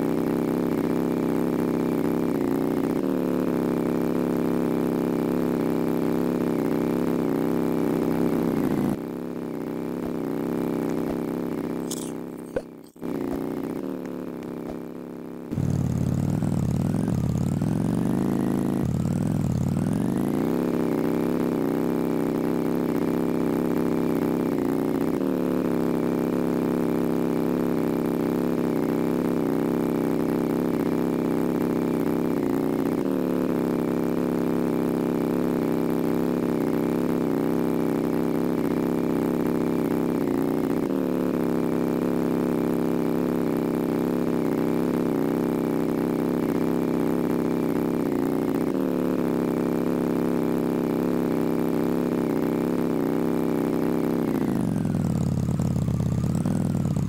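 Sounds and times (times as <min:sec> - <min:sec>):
motor running: 0:09.6 - 0:18.2.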